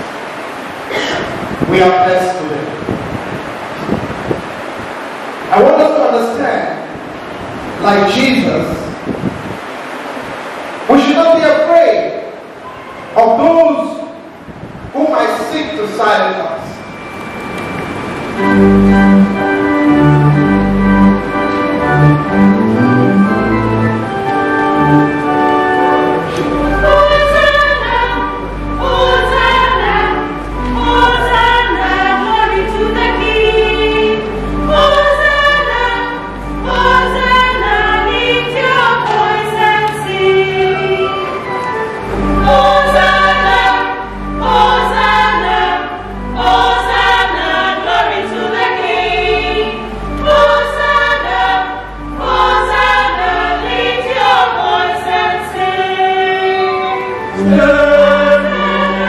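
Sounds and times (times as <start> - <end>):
mixed choir singing a hymn: 18.2 - 59.0.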